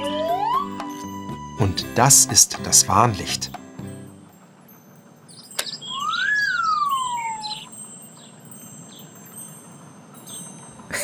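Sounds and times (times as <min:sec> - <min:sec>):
gliding cartoon whistle: 0:00.0 - 0:00.8, 0:05.6 - 0:07.7
twinkling chimes: 0:03.9 - 0:11.0
faint bird-like chirps: 0:05.3 - 0:09.2.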